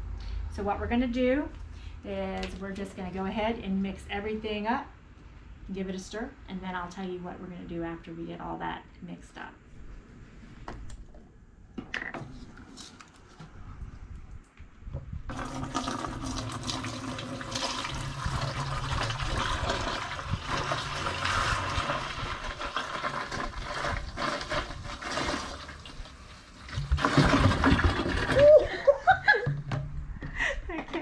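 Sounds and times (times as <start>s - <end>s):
juice pouring into plastic jar: 15.3s - 28.4s.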